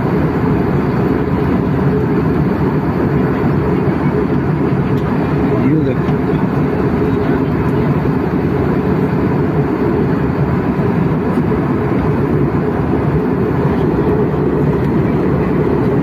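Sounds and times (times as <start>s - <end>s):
jet airliner cabin drone: 0.0s - 16.0s.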